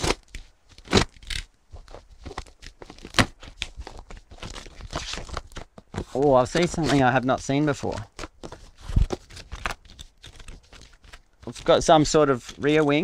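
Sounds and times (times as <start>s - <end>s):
knife slicing packing tape: 0.0s - 3.6s
cardboard flaps tearing: 0.0s - 13.0s.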